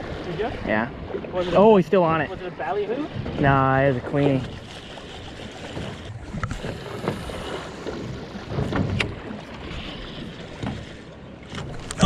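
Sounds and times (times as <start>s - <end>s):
water slapping against boat hull: 0.0s - 12.0s.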